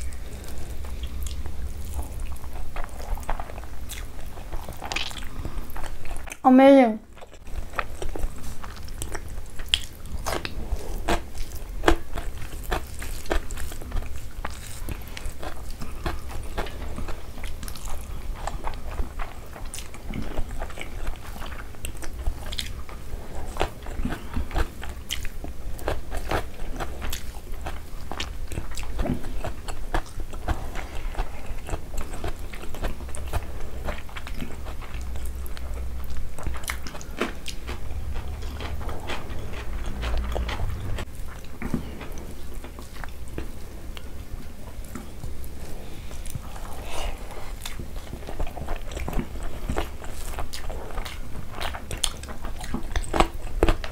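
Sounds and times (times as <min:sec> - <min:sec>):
people chewing food: 0:00.0 - 0:53.9.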